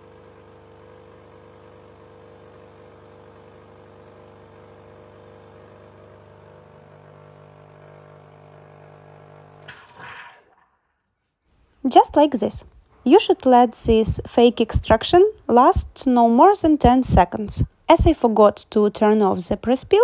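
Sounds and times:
espresso machine pump running: 0.0 - 10.5.

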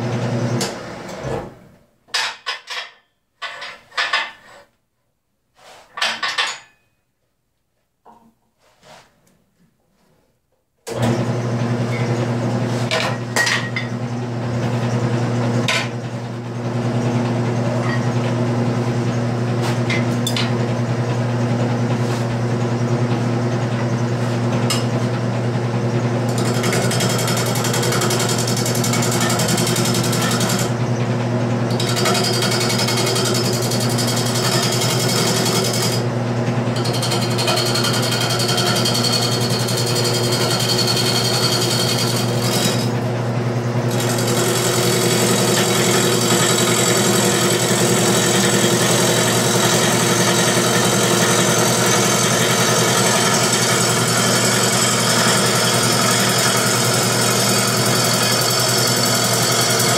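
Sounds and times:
wood lathe motor humming: 26.2 - 30.8, 31.7 - 36.1, 36.8 - 43.0, 43.9 - 59.9
gouge scraping spinning wood: 26.3 - 30.7, 36.8 - 42.9, 43.9 - 59.9.

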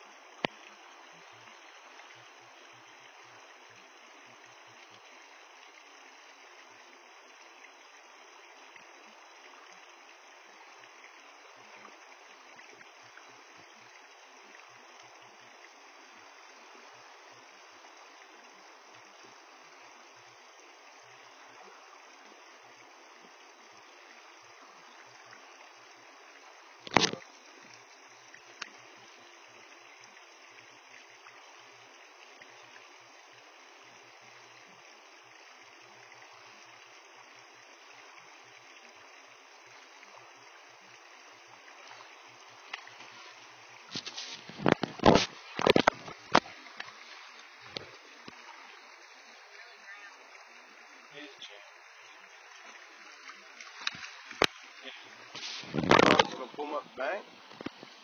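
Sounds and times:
flowing river water: 0.0 - 58.0
faint click: 0.4 - 0.8, 28.6 - 28.8, 42.7 - 43.1, 44.0 - 47.0.

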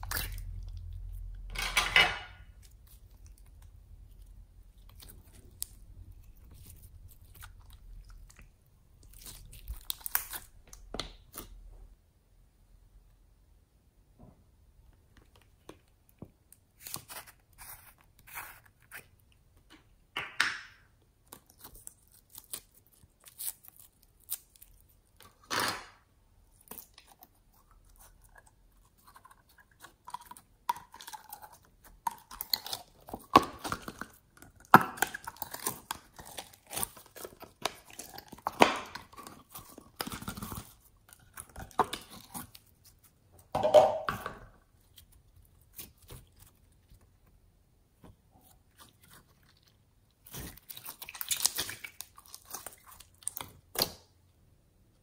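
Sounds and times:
slime crackling and squelching: 0.0 - 1.5, 2.4 - 11.6, 21.0 - 25.5, 26.4 - 43.5, 48.0 - 54.0.

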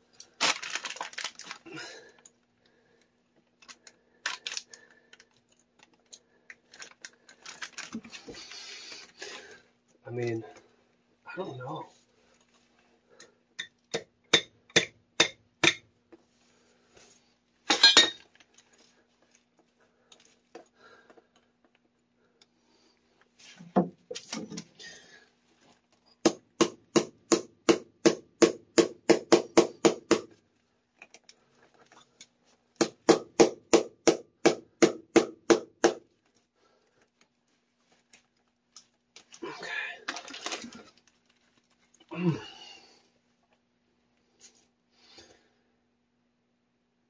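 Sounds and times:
wrench hammering brass valve: 13.6 - 15.8, 17.7 - 18.2.

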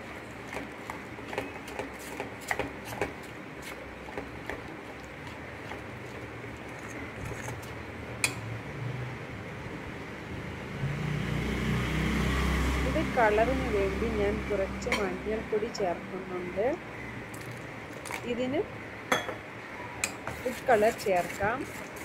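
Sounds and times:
spoon beating batter in steel bowl: 0.0 - 7.8, 20.0 - 22.0.

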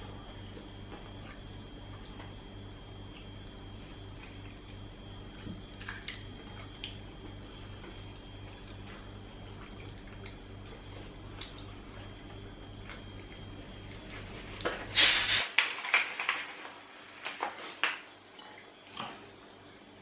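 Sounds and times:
low steady hum: 0.0 - 20.0
wet chewing: 0.5 - 14.2.

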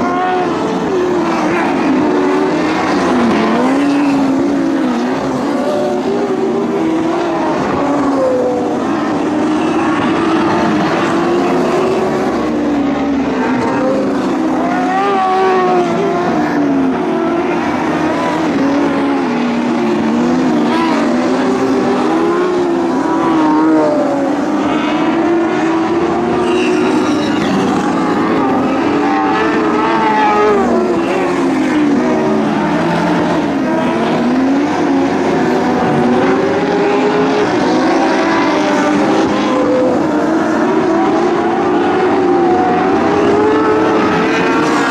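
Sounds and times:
race car engines revving: 0.0 - 44.9.

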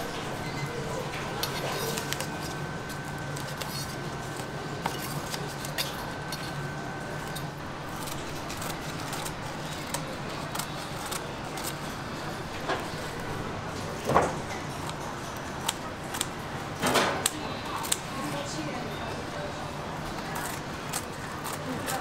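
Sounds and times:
brittle cracker crackling: 1.0 - 13.3, 20.0 - 22.0
blade trimming cracker: 7.2 - 12.0, 20.2 - 22.0.

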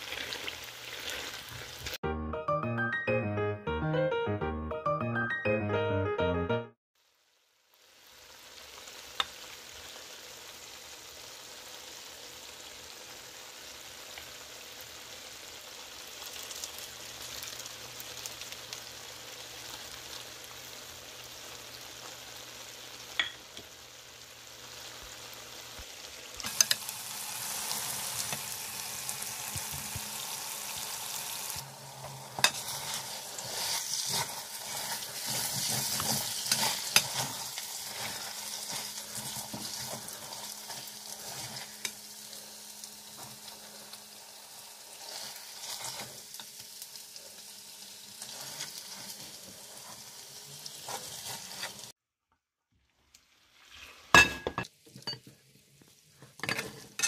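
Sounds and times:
food sizzling in metal pan: 0.0 - 2.0, 7.0 - 52.0, 53.0 - 57.0
metal spoon scraping pan: 32.4 - 41.7.

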